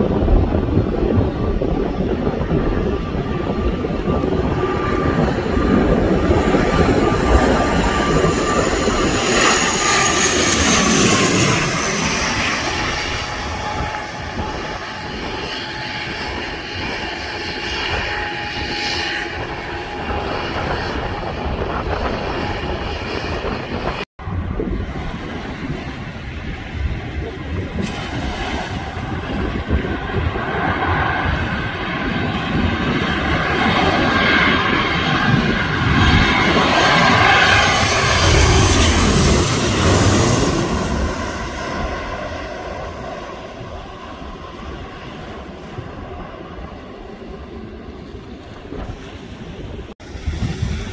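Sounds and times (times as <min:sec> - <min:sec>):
airliner engines rushing: 0:00.0 - 0:50.9.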